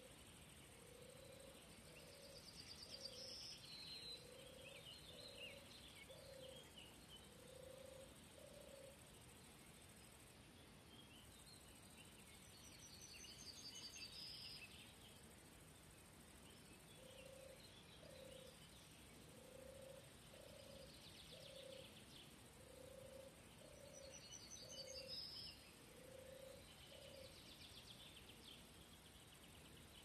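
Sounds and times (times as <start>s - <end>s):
distant frog calling: 0.7s - 9.1s, 17.0s - 27.4s.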